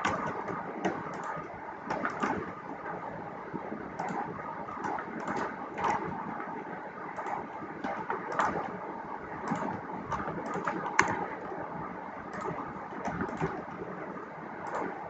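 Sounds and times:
keyboard keys clicking: 0:00.0 - 0:02.4, 0:04.0 - 0:06.1, 0:09.4 - 0:11.5.

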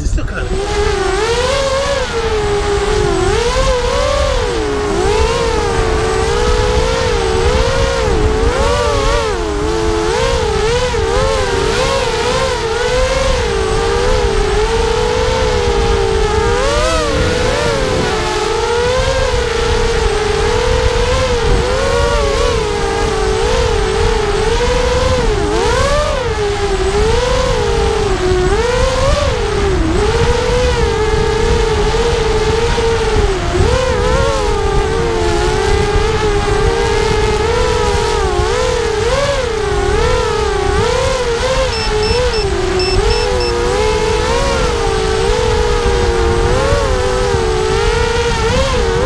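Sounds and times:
drone motors whining: 0:00.0 - 0:49.0
wind on microphone: 0:00.0 - 0:49.0.

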